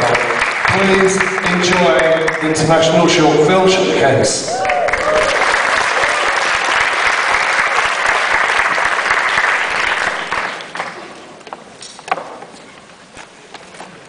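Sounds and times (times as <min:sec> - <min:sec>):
audience applauding: 0:00.0 - 0:03.3, 0:04.5 - 0:11.2.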